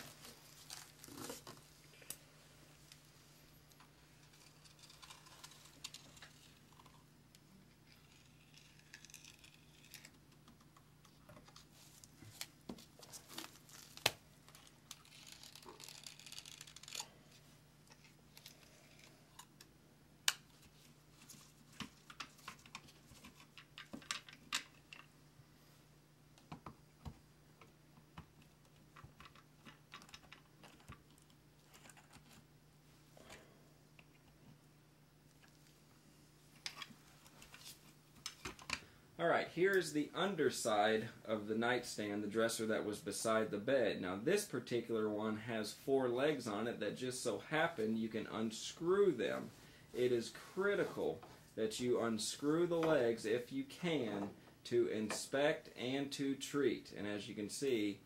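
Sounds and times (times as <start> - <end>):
handling clicks and crinkling: 3.7 - 19.7, 20.3 - 25.1, 26.4 - 32.5.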